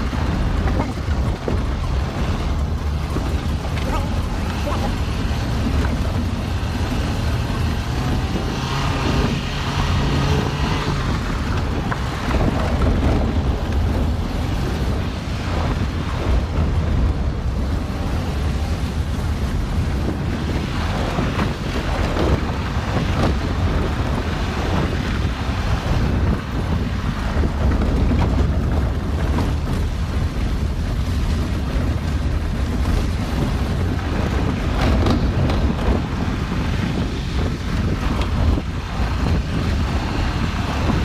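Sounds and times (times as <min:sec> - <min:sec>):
car driving on gravel: 0:00.0 - 0:41.0
wind buffeting microphone: 0:00.0 - 0:41.0.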